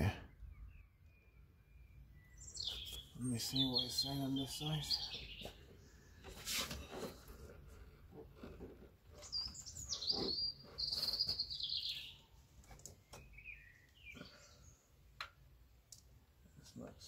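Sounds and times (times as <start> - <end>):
bird singing: 0.0 - 7.6, 9.1 - 14.9.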